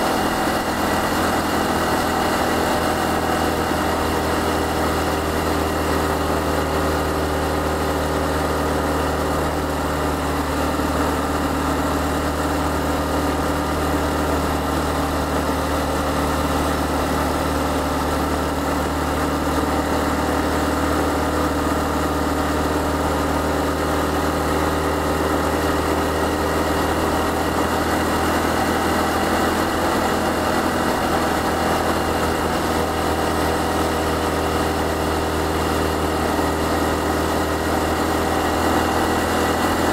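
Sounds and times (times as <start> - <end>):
motorcycle engine running steadily: 0.0 - 39.9.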